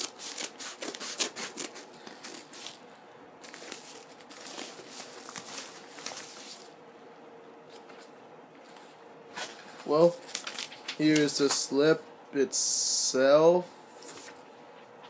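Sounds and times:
paper envelope tearing: 0:00.0 - 0:02.8, 0:03.4 - 0:06.7, 0:10.0 - 0:11.3
tape rustling and crinkling: 0:00.0 - 0:06.8, 0:07.7 - 0:11.7.

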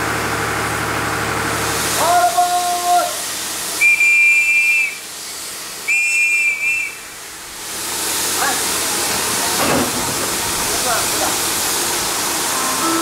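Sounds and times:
steam hiss: 0:01.6 - 0:13.0
hand whistle blasts: 0:03.8 - 0:05.0, 0:05.9 - 0:07.0.

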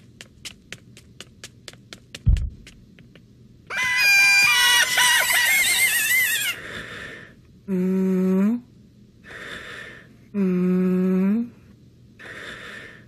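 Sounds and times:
voice humming long notes: 0:07.7 - 0:08.7, 0:10.3 - 0:11.6.

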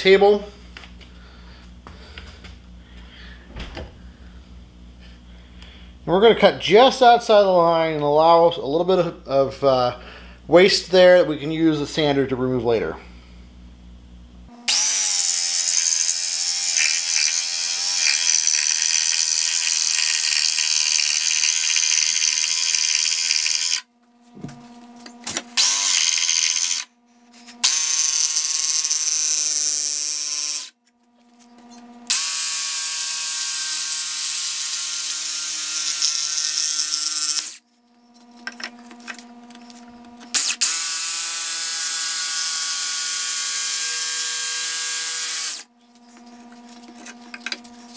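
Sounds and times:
jigsaw sawing through wood: 0:14.7 - 0:23.8, 0:25.6 - 0:26.9, 0:27.6 - 0:30.7, 0:32.1 - 0:37.6, 0:40.3 - 0:45.7.

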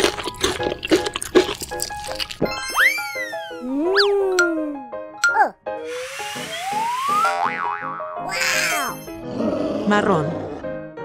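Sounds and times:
cartoon candy crunching: 0:00.0 - 0:04.1
background music: 0:00.0 - 0:11.0
whistle-like sweeping tone: 0:02.5 - 0:04.2, 0:05.8 - 0:07.4.

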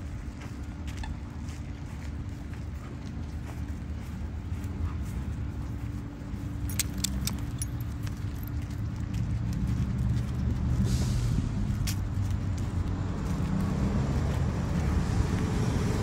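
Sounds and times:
low rumble of road traffic: 0:00.0 - 0:16.0
dog collar and leash jingling: 0:06.4 - 0:09.9.

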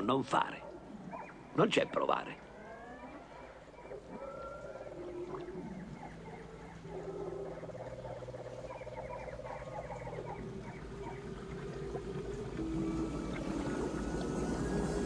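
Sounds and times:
low steady hum: 0:00.0 - 0:15.0
chirping animal calls: 0:00.6 - 0:11.7
frog-like croaks: 0:00.7 - 0:15.0.

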